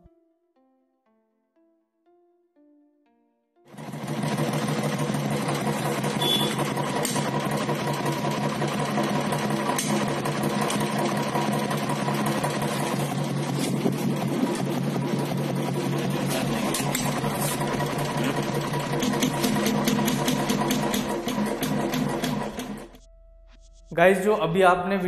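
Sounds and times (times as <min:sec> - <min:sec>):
motorcycle engine idling with clatter: 0:03.7 - 0:23.0.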